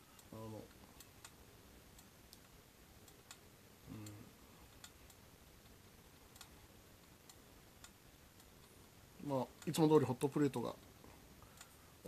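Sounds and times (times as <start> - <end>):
low vocal murmur: 3.9 - 4.4.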